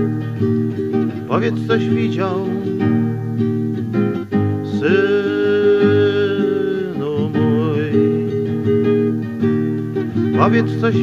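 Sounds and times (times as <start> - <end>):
acoustic guitar accompaniment: 0.0 - 11.0
man singing: 1.1 - 3.1, 4.6 - 9.0, 10.2 - 11.0.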